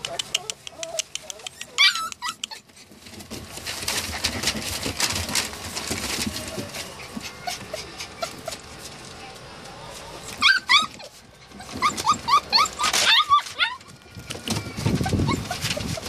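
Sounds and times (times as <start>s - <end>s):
puppies whimpering: 0.0s - 3.2s, 5.4s - 16.0s
paws scratching on newspaper: 0.0s - 16.0s
high wavering puppy squeal: 0.4s - 2.7s, 10.4s - 16.0s.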